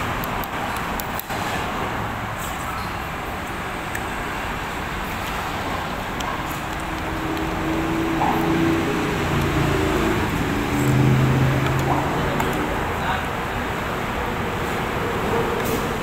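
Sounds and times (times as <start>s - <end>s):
road traffic engine drone: 0.0s - 16.0s.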